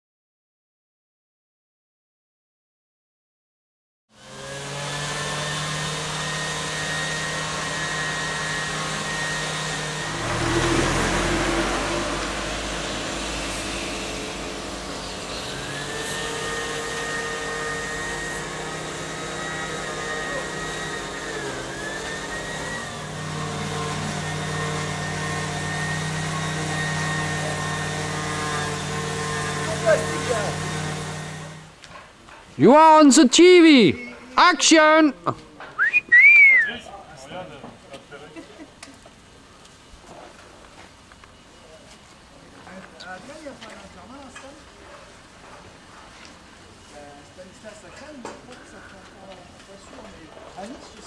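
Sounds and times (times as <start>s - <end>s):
machine motor whining: 4.2s - 31.8s
loud rushing noise: 6.1s - 31.7s.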